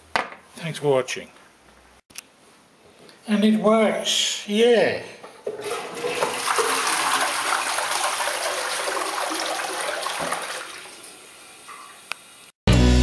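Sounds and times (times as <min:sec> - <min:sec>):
toilet flushing: 0:05.4 - 0:12.0.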